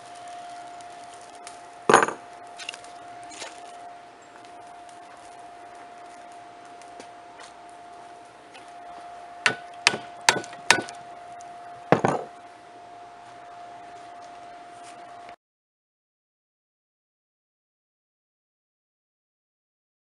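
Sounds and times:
faint steady hum: 0.0 - 15.4
hammer striking hot metal: 9.4 - 11.0.

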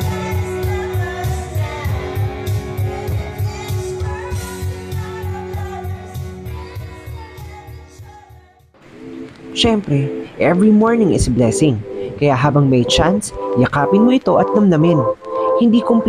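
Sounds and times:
group singing into microphone: 0.0 - 6.7
pop song with steady beat: 0.0 - 10.6, 11.2 - 16.0.

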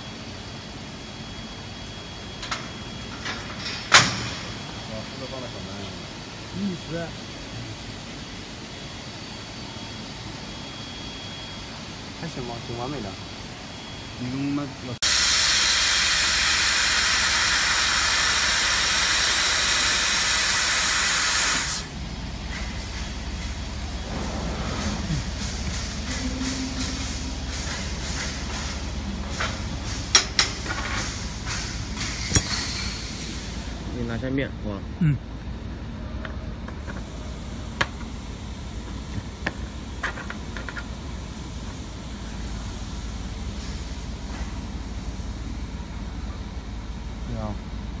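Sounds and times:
assist gas jet hissing: 15.0 - 22.0
low machine hum: 17.5 - 48.0.

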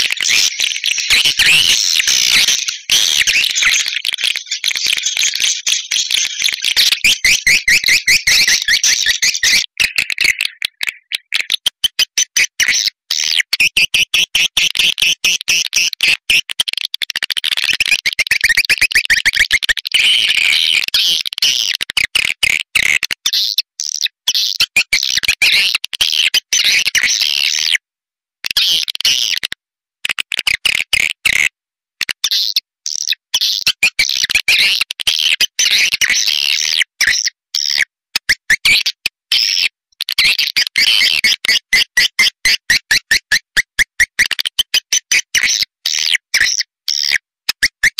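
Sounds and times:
high-pitched bird chirping and twittering: 0.0 - 14.5, 32.3 - 37.8, 39.3 - 43.3.

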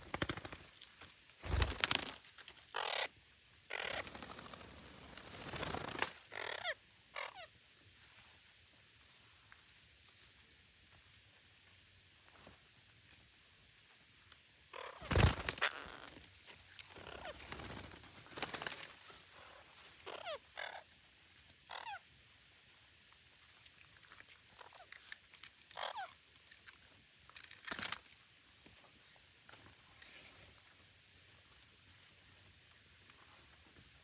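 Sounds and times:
parakeets calling harshly: 2.7 - 3.1, 3.7 - 4.6, 6.3 - 7.5, 20.0 - 20.8, 21.7 - 22.0.

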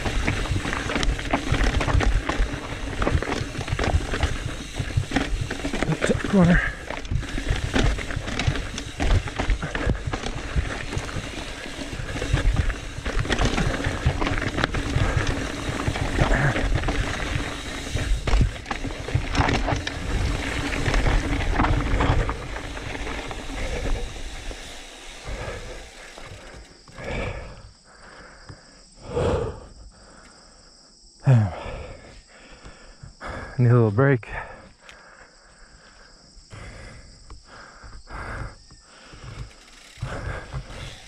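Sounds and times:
bike rattling over rocks: 0.0 - 27.6, 36.5 - 41.0.

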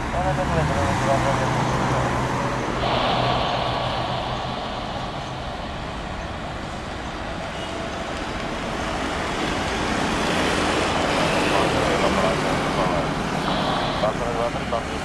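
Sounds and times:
jet engines roaring: 2.7 - 8.2, 13.1 - 15.0.

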